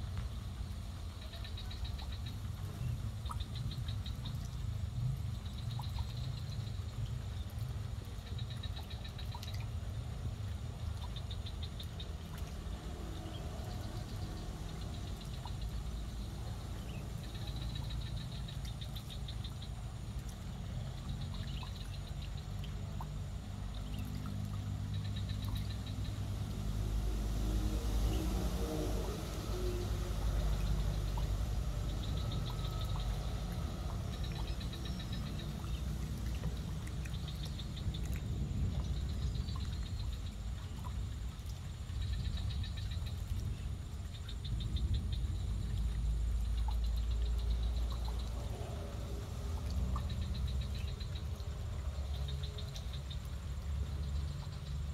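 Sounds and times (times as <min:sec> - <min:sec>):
steady low rumble: 0:00.0 - 0:54.9
high-pitched ticking animal calls: 0:29.6 - 0:38.2.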